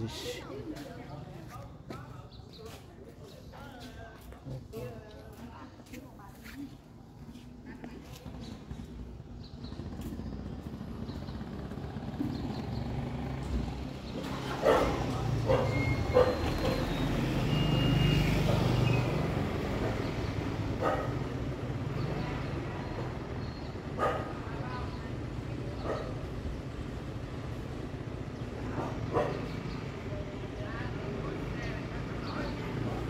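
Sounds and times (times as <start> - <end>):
vehicle rumbling past: 8.3 - 33.0.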